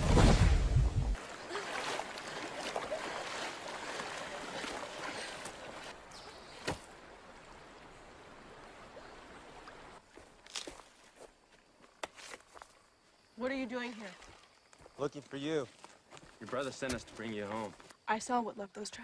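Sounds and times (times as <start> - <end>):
water splashing and sloshing: 0.0 - 11.3, 13.4 - 15.2
flowing water hiss: 1.2 - 10.5.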